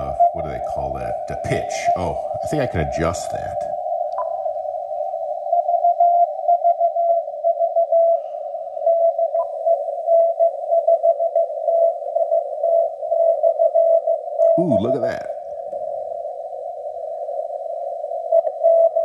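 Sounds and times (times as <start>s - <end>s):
radio band hiss: 0.0s - 3.8s, 14.5s - 15.4s.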